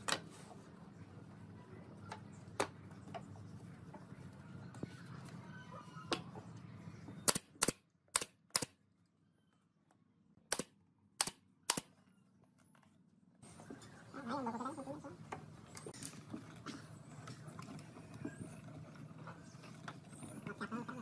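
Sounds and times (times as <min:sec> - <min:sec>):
nail gun firing into wood: 0:07.3 - 0:08.8, 0:10.5 - 0:11.9.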